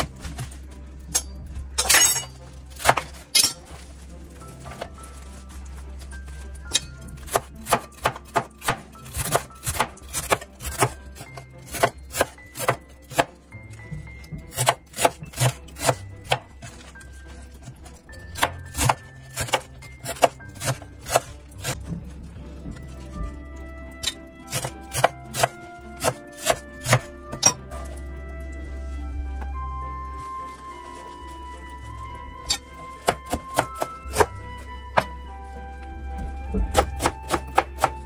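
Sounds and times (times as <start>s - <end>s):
knife chopping on cutting board: 7.3s - 11.0s, 11.7s - 13.3s, 14.5s - 16.4s, 18.4s - 21.8s, 24.5s - 27.1s, 36.5s - 38.0s.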